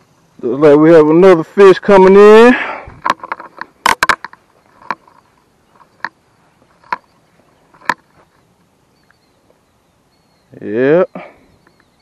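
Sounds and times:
fishing rod clicks and taps: 3.0 - 6.2, 6.8 - 7.1, 7.7 - 8.1.

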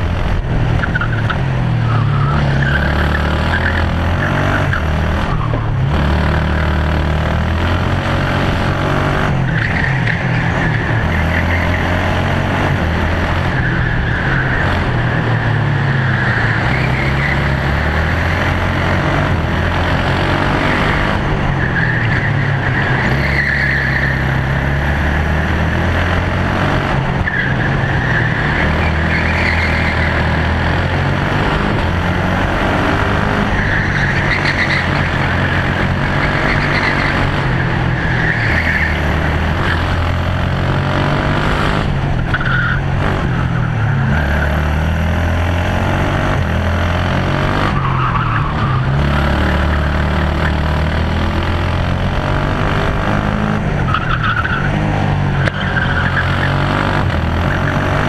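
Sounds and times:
kart engine running hard: 0.0 - 58.0.

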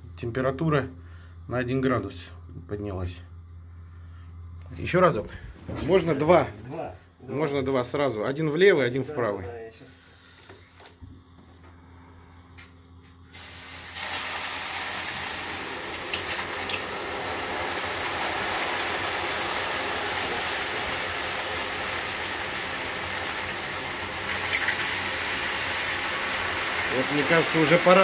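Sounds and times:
water hissing to steam on hot stones: 13.3 - 28.0.

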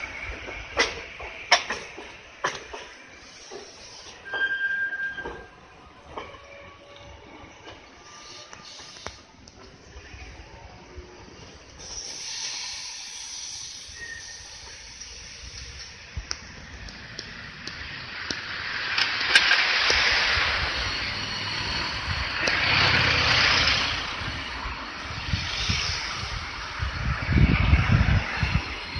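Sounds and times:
cars passing with tyre hiss: 3.0 - 4.2, 8.0 - 9.9, 11.6 - 28.9.

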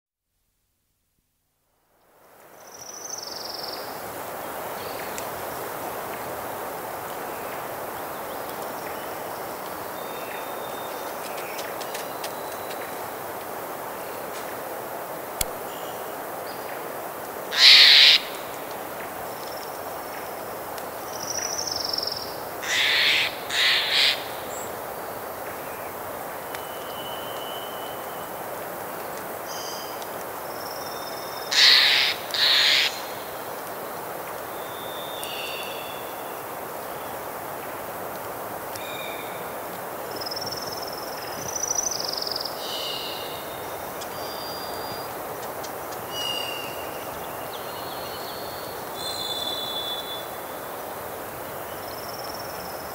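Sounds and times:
wind: 0.2 - 52.9
thin whistled bird songs: 26.5 - 28.3, 34.5 - 37.2, 40.2 - 45.2, 46.1 - 50.4.

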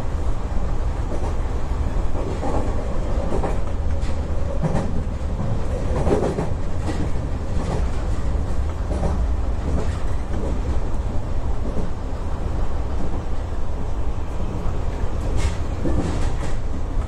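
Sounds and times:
electric train rumbling: 0.0 - 17.0
wheels clicking over rails: 2.1 - 12.0, 14.9 - 17.0.

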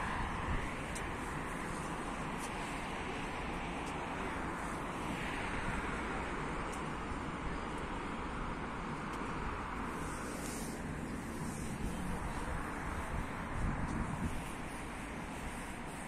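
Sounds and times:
wind on microphone: 0.0 - 3.7, 9.8 - 16.0
road traffic: 0.0 - 16.0.

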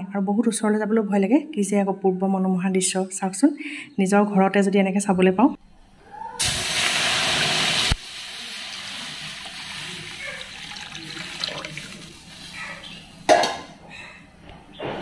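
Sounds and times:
water pouring into a metal wok: 6.4 - 12.5.

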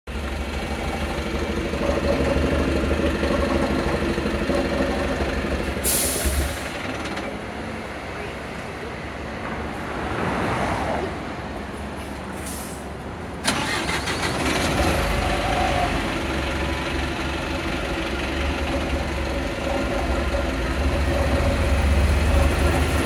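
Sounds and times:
engine knocking: 0.1 - 7.4, 13.5 - 23.0
diesel bus engine starting: 0.1 - 7.6, 12.4 - 23.0.

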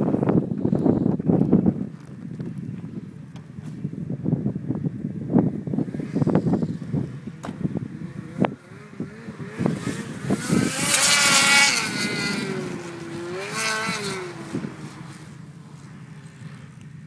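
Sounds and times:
snowmobile engine revving: 5.8 - 16.9.

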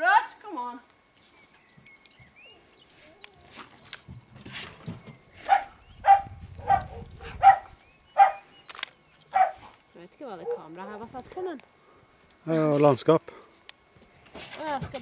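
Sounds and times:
dog barking: 5.4 - 8.5, 9.3 - 9.7, 10.4 - 10.7.

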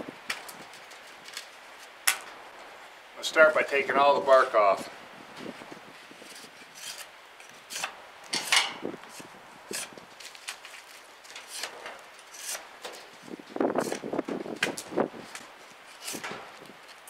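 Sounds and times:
knife scraping bark off stick: 6.3 - 12.7, 13.8 - 14.1, 15.8 - 16.4.

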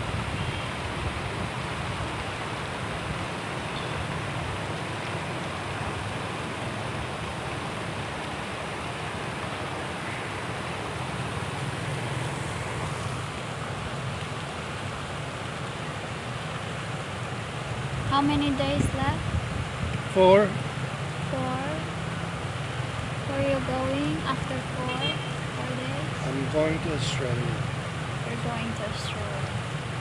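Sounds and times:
fountain water splashing: 0.0 - 30.0
wind buffeting microphone: 17.8 - 20.1.

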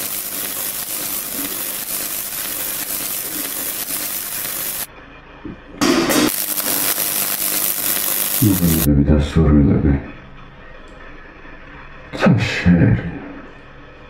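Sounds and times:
arc welding crackling hiss: 0.0 - 4.9, 5.8 - 8.9.

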